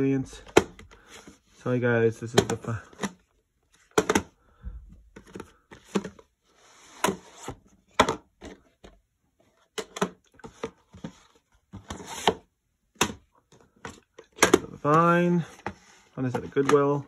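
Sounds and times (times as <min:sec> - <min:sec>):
plastic case clicks and knocks: 0:03.9 - 0:04.4, 0:13.0 - 0:14.7.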